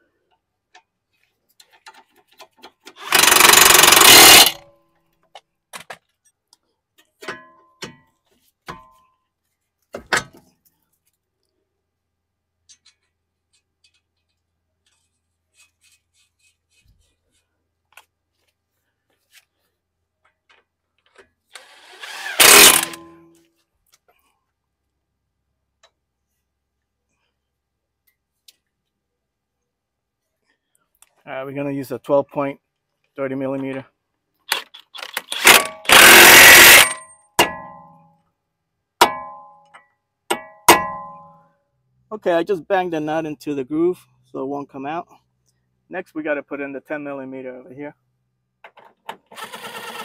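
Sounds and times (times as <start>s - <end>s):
impact wrench spinning a nut: 2.9s - 4.6s, 21.5s - 23.1s, 34.5s - 37.2s.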